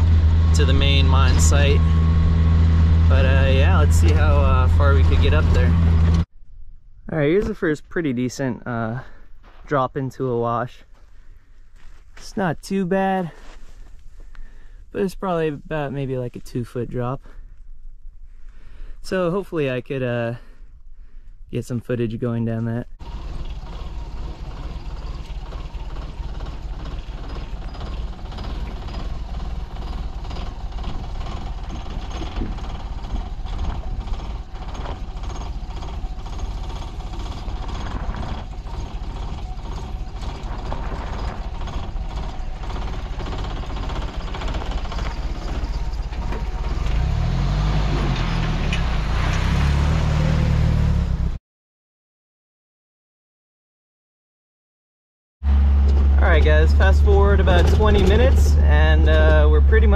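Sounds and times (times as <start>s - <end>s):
car engine running at low speed: 0.0s - 6.3s, 22.5s - 51.4s, 55.4s - 59.9s
steady low rumble: 0.0s - 10.2s.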